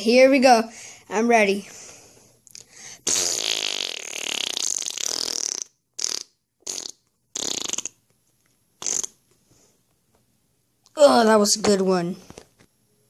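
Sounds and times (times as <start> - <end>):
fart noises: 3.0 - 8.0, 8.8 - 9.3.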